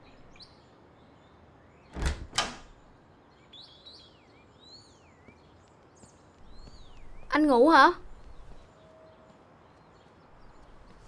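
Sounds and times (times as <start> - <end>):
door latch clicking: 1.9 - 2.8.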